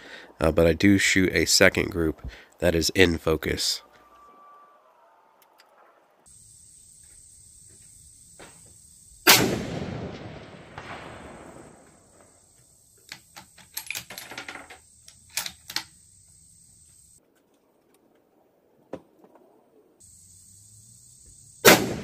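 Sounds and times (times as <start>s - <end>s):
rifle shot echoing: 9.2s - 12.2s, 21.6s - 22.0s.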